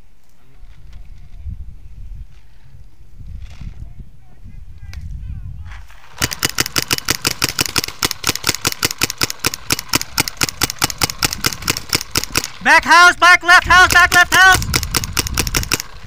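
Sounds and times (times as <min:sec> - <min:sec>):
wind rumble on microphone: 0:00.4 - 0:06.8, 0:10.1 - 0:12.4, 0:13.6 - 0:16.0
paintball marker rapid firing: 0:06.0 - 0:12.6, 0:13.8 - 0:16.0.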